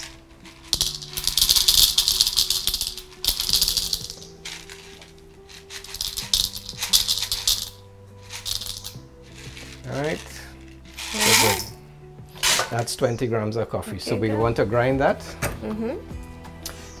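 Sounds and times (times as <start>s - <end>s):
coffee beans rattling into bowl: 0.0s - 11.8s, 12.4s - 12.8s.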